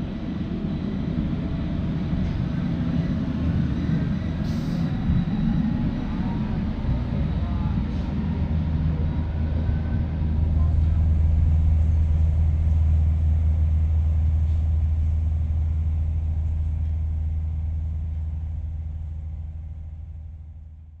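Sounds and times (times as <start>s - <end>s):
train rumble from on board: 0.0s - 21.0s.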